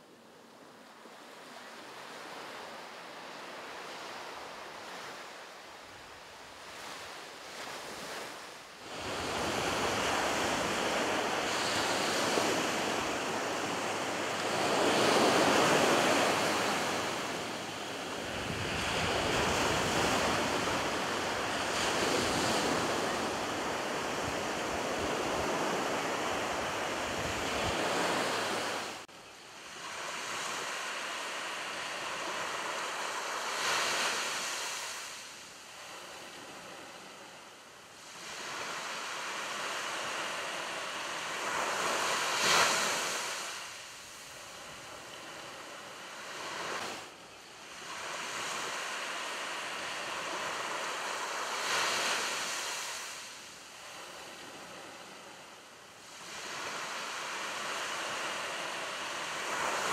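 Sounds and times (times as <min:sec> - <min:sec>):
ocean waves washing onto beach: 0:00.7 - 0:59.9.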